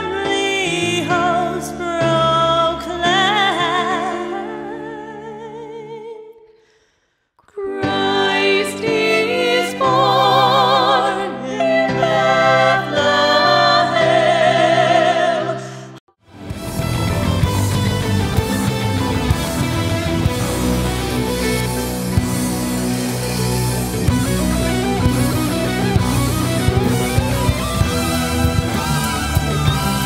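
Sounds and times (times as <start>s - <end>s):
women singing in harmony: 7.5s - 16.0s
electric guitar rock music: 16.3s - 30.0s.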